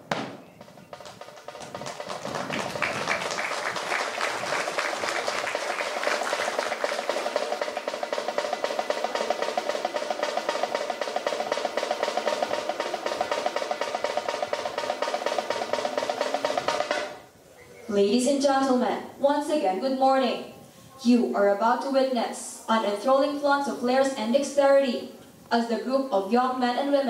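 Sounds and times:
snare drum roll: 0.0 - 17.3.

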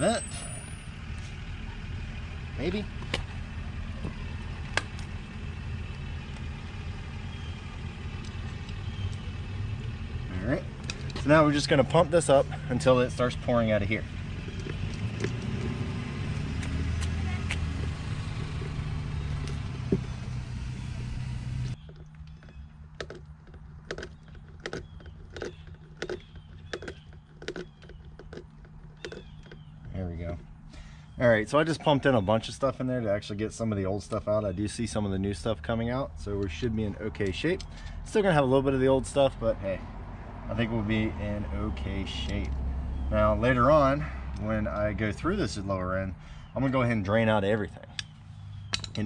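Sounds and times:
steady low rumble: 0.6 - 23.9
small metal clicks: 21.8 - 29.7.

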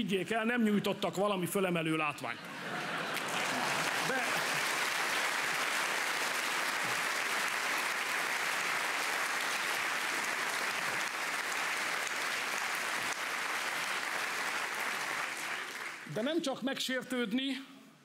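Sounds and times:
audience applauding: 2.6 - 16.2.

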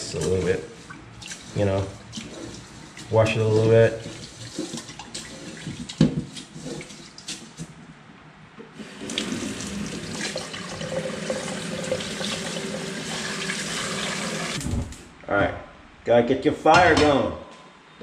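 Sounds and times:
tap water running into pot: 0.0 - 7.3, 8.8 - 14.6
knocks and swishes in metal pot: 0.0 - 7.8.

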